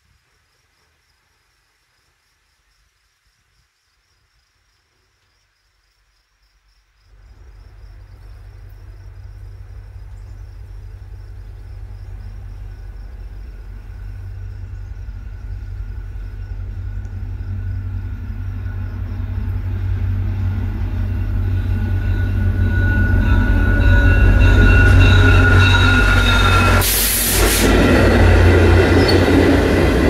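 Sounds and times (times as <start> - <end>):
diesel train rumbling: 7.1 - 30.0
high squeal: 20.5 - 29.9.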